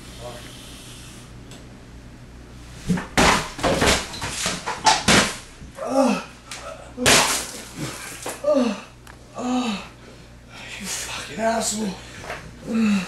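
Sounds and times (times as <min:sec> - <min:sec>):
man groaning in pain: 0:05.8 - 0:07.1, 0:08.4 - 0:10.0, 0:12.6 - 0:13.0.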